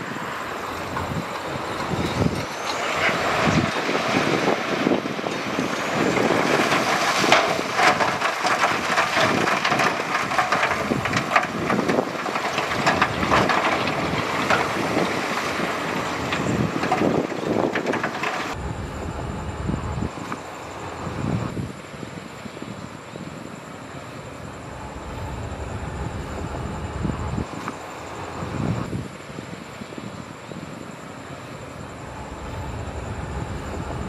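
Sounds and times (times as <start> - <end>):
low engine rumble: 0.0 - 34.0
loose rock clattering and crunching: 0.8 - 18.6
earthmoving machine noise: 24.1 - 29.1, 31.5 - 34.0.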